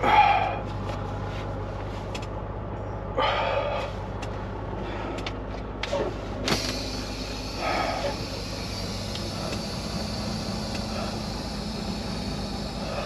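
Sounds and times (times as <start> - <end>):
diesel engine idling: 0.0 - 13.0
compressed air hissing: 6.5 - 13.0.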